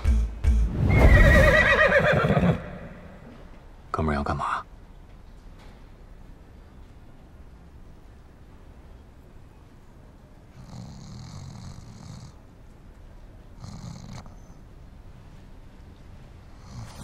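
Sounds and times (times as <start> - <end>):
man snoring: 10.6 - 12.4, 16.6 - 17.0.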